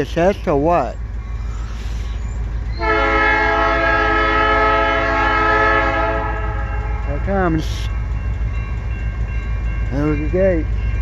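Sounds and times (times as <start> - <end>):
locomotive air horn blast: 2.8 - 6.7.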